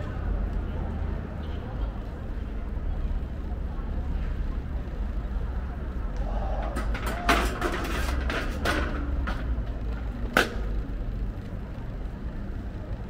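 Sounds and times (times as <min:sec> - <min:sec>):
street traffic rumble: 0:00.0 - 0:13.0.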